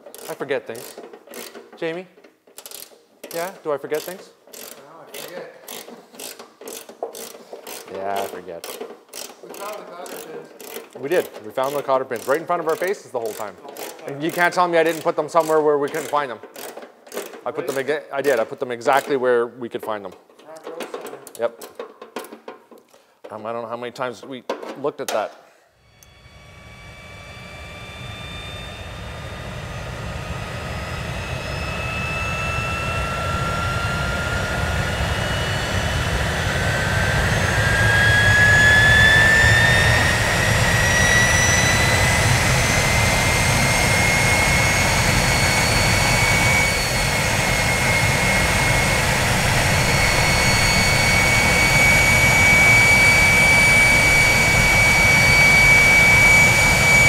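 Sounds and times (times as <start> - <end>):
jet engine whine rising: 25.8 - 57.0.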